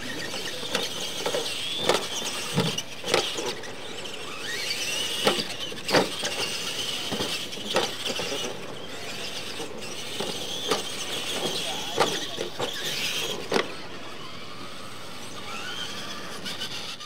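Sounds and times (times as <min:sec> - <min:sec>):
rc truck motor whine: 0:00.0 - 0:17.0
trucks knocking on ramps: 0:05.0 - 0:13.8.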